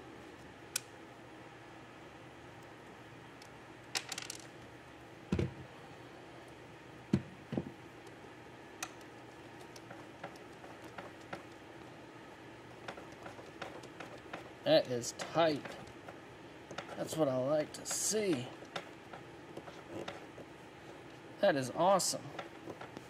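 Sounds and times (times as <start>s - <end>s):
low shop hum: 0.0s - 23.0s
handling clicks and knocks: 8.8s - 11.6s, 12.7s - 20.5s, 22.2s - 23.0s.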